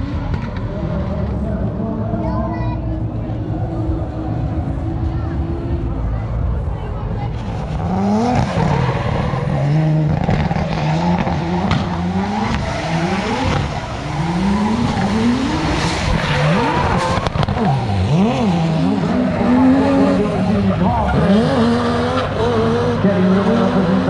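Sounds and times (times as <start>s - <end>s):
car engine revving hard: 7.4s - 24.0s.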